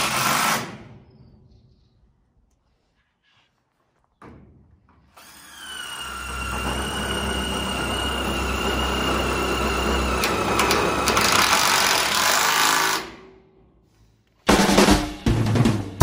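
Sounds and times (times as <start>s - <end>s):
cordless drill driving screw: 5.2s - 13.1s.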